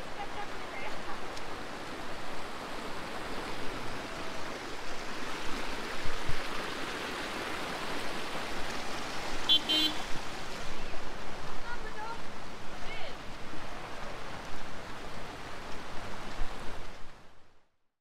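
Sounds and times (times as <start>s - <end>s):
heavy rain: 0.0s - 17.2s
floodwater rushing: 0.0s - 17.3s
car horn beep: 9.5s - 10.1s.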